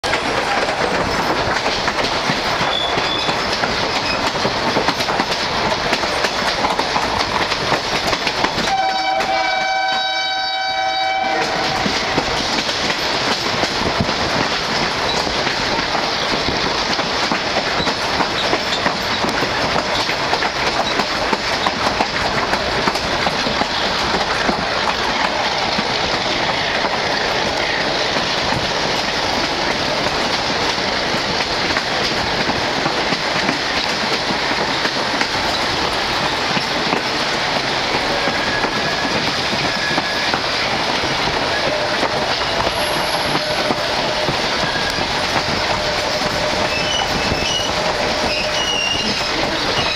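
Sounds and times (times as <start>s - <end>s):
train wheels rattling on rails: 0.0s - 49.9s
train wheels squealing: 2.6s - 4.3s, 17.7s - 19.2s, 38.0s - 40.7s, 41.5s - 49.9s.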